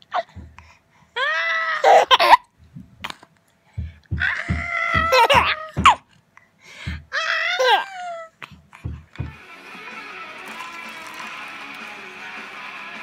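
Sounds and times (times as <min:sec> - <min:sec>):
baby laughing and squealing: 0:01.8 - 0:02.5, 0:04.4 - 0:06.0, 0:07.4 - 0:08.3.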